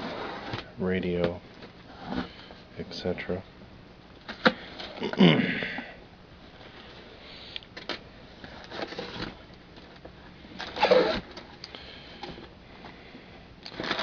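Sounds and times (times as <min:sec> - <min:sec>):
cardboard scraping: 0:00.0 - 0:00.7, 0:08.4 - 0:09.4, 0:10.6 - 0:11.4, 0:13.7 - 0:14.0
packing tape being cut: 0:10.6 - 0:11.4, 0:13.6 - 0:14.0.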